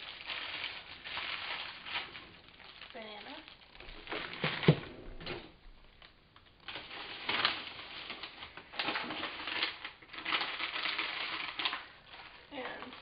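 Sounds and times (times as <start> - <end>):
frozen food bags rustling: 0.0 - 13.0.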